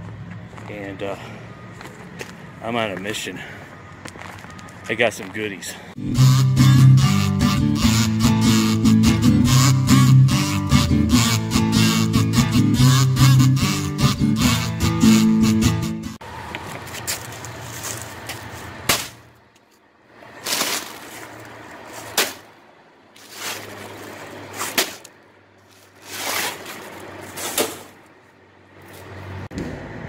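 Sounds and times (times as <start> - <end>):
plastic rustling: 20.3 - 22.5, 23.2 - 28.0.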